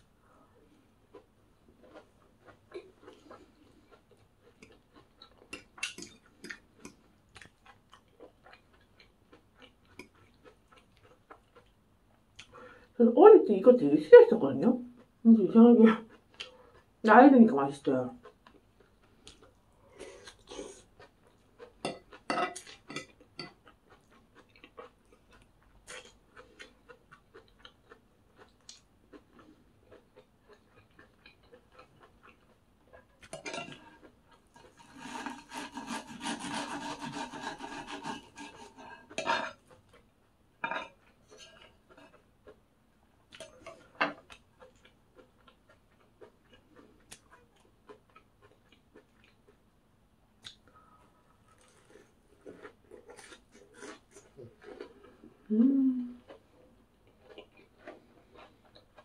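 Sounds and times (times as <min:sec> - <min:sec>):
cutlery scraping a plate: 0:33.3 - 0:39.7, 0:40.6 - 0:42.2.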